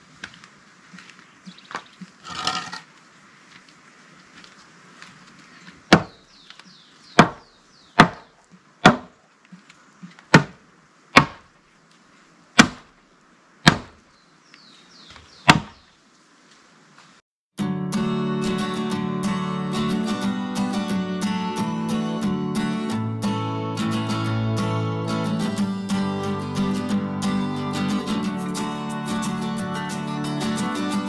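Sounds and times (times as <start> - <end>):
wood scraping rustle: 0.0 - 7.2, 11.4 - 13.2
knocks on wooden post: 5.9 - 6.2, 7.2 - 7.4, 8.0 - 9.1.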